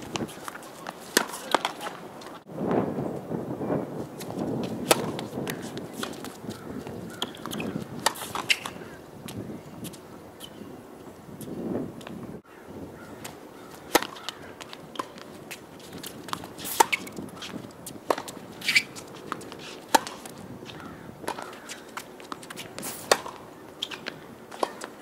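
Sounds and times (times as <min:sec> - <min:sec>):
tennis ball struck by rackets: 0:00.1 - 0:02.0, 0:04.6 - 0:06.5, 0:07.2 - 0:08.8, 0:13.2 - 0:24.9
tennis ball bouncing on court: 0:00.1 - 0:02.4, 0:04.6 - 0:08.8, 0:13.2 - 0:24.9.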